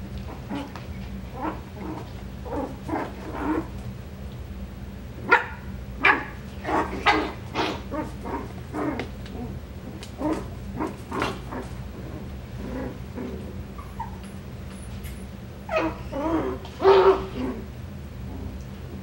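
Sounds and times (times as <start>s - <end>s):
puppies yipping and barking: 13.8s - 14.3s.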